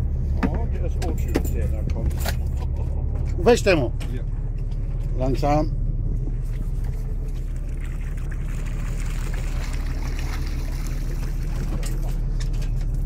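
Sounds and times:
boat engine running: 0:00.0 - 0:13.0
water splashing from fish: 0:07.4 - 0:12.3.

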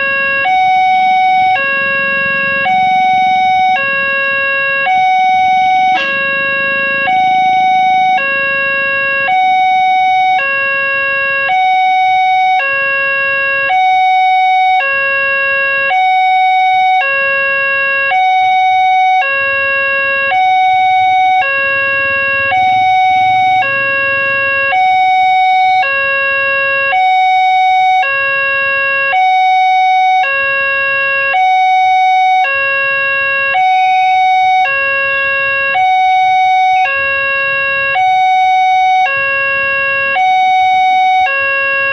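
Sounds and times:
two-tone crossing warning alarm: 0:00.0 - 0:41.9.

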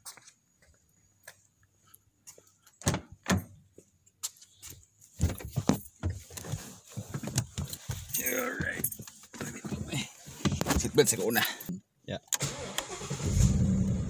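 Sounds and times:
bumps knocks and rustling: 0:05.1 - 0:11.1.

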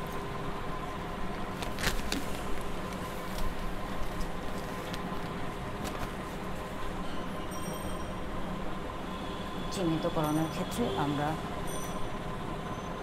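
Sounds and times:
room hum with faint whine: 0:00.0 - 0:13.0.

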